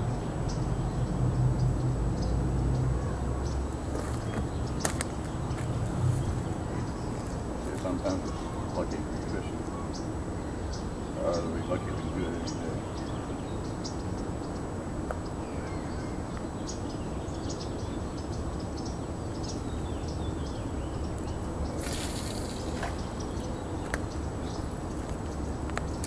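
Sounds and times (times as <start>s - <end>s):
steady low rumble: 0.0s - 26.0s
fishing line hiss: 21.8s - 23.2s.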